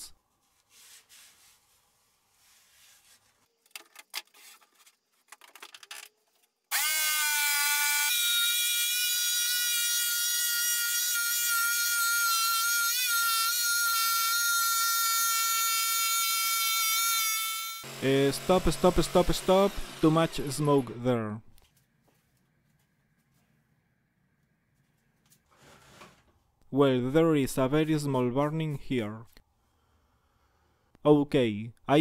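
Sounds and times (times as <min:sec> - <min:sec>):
faint rubbing: 0:00.3 - 0:03.5, 0:24.7 - 0:26.5
electric jigsaw cutting wood: 0:06.7 - 0:16.8, 0:17.5 - 0:21.0.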